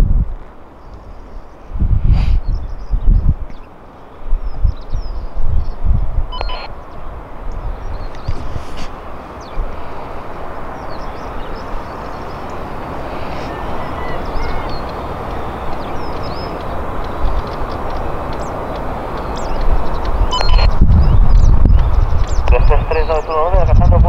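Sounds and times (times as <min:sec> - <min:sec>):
jet engines rushing: 0:06.2 - 0:23.8.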